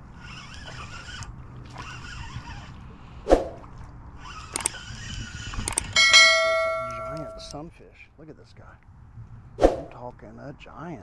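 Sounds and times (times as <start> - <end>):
fishing reel cranking: 0.0 - 2.8, 4.2 - 7.5.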